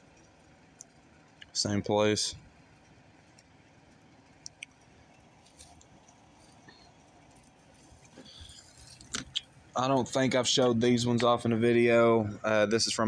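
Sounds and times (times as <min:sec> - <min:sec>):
soft clicks: 0:04.3 - 0:06.2.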